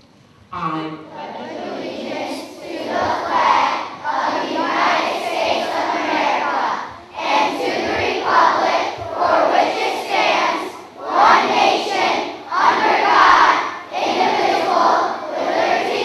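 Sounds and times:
children reciting in unison: 0:01.0 - 0:16.0.

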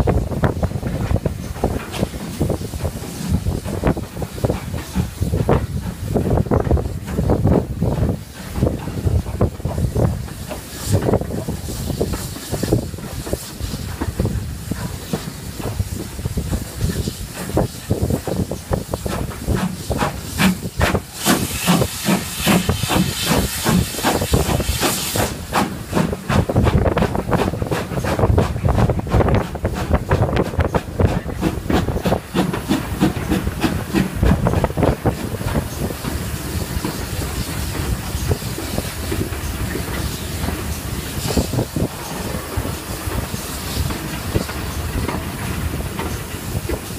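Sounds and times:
steam hissing: 0:00.0 - 0:46.9
steam locomotive exhaust beats: 0:00.0 - 0:46.9
train running noise: 0:00.0 - 0:46.9.

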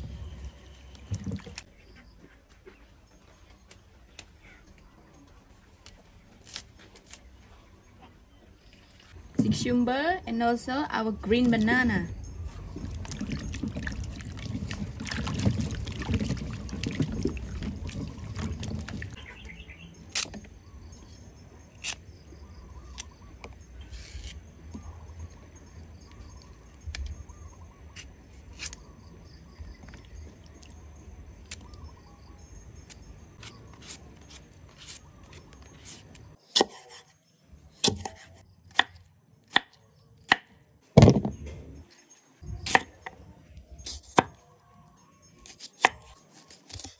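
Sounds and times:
water dripping: 0:12.7 - 0:19.2.

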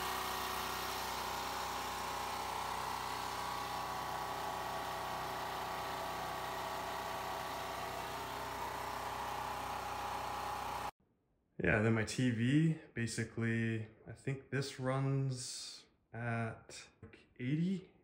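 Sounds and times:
generator engine humming: 0:00.0 - 0:10.9.

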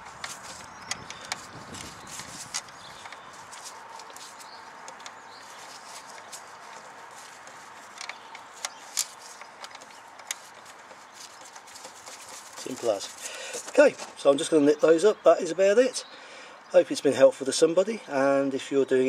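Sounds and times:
metal parts clicking: 0:00.0 - 0:13.8.

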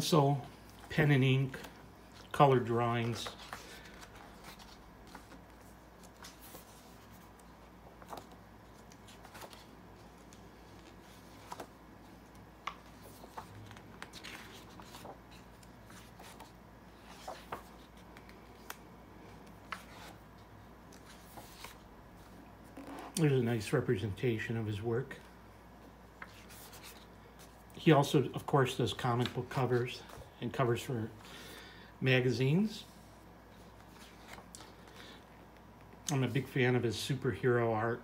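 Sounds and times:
low room hum: 0:00.0 - 0:38.0
book pages turning: 0:00.6 - 0:23.3, 0:26.1 - 0:27.8, 0:33.6 - 0:36.5.

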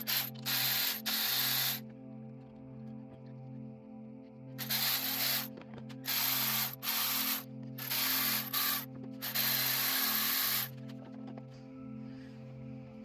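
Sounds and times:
cordless electric ratchet whirring: 0:00.0 - 0:01.8, 0:04.6 - 0:05.5, 0:06.1 - 0:10.7.

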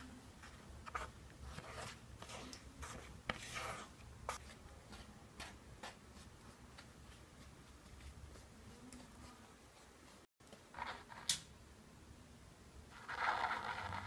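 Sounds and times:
spatula scraping flour on metal tray: 0:00.8 - 0:04.5.

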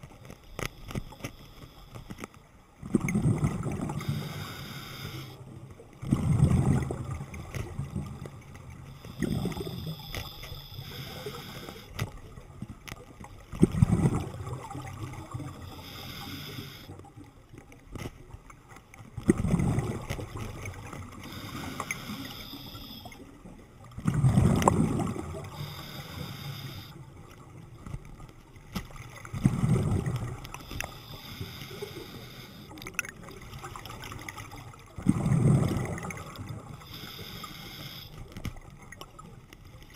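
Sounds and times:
exhaled bubbles underwater: 0:02.8 - 0:39.9
regulator inhale hiss: 0:04.0 - 0:05.4, 0:08.9 - 0:12.0, 0:15.6 - 0:17.0, 0:21.1 - 0:23.2, 0:25.4 - 0:27.0, 0:30.5 - 0:32.8, 0:36.8 - 0:38.4.

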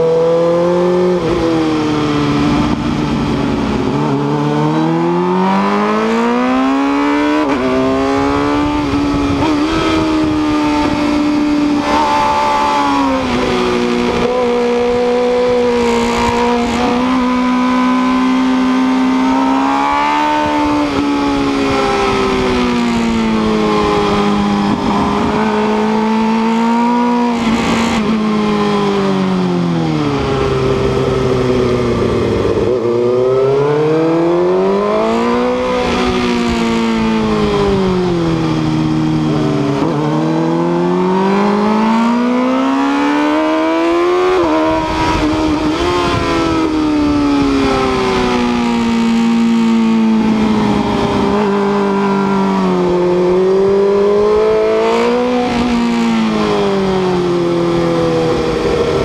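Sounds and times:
motorcycle engine revving: 0:00.0 - 0:59.0
wind rush over microphone: 0:07.4 - 0:19.2, 0:20.1 - 0:28.3, 0:33.8 - 0:40.6, 0:43.6 - 0:59.0.

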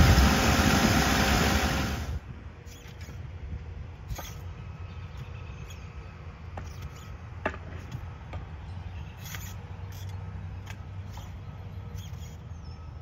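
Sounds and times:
engine idling: 0:00.0 - 0:02.2
post-hole digger scraping dirt: 0:00.0 - 0:03.3.

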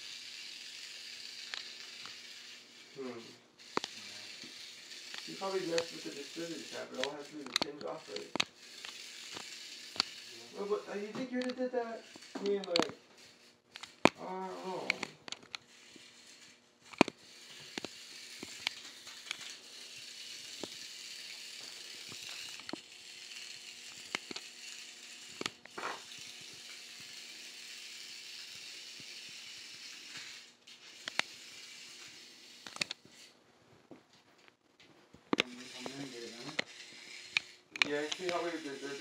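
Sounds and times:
steady hiss: 0:00.0 - 0:13.6, 0:35.4 - 0:39.0.

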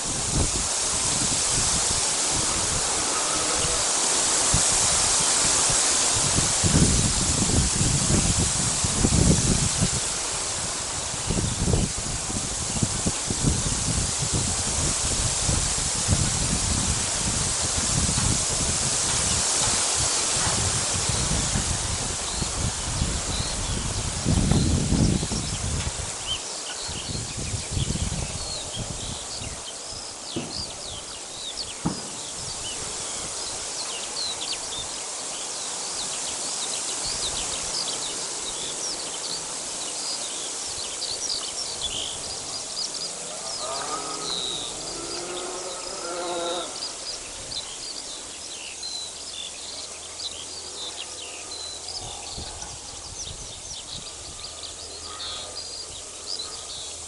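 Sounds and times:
steady high hiss: 0:00.0 - 0:57.0
small birds chirping: 0:16.4 - 0:57.0
lower repeated bird calls: 0:24.5 - 0:57.0.

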